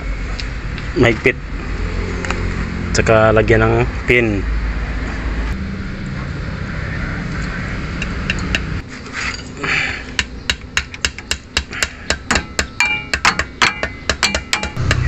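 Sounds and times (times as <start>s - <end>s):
low engine rumble: 0.0s - 10.6s, 14.6s - 15.0s
hand tools tapping metal: 10.1s - 15.0s.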